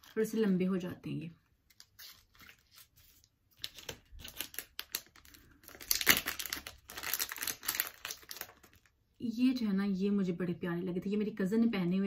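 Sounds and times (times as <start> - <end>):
plastic packet crinkling: 1.7 - 9.0.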